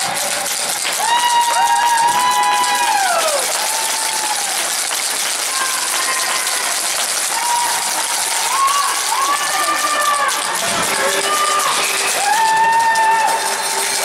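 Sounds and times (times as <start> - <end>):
crowd and skating noise: 0.0 - 14.0
spectators shouting long calls: 7.3 - 13.9.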